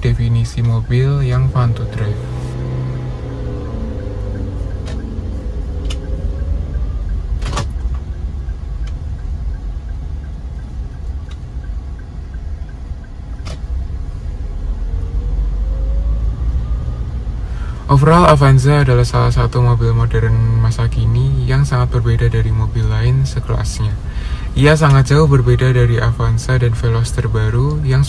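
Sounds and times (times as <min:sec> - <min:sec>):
car engine and tyres rumbling: 0:00.0 - 0:28.0.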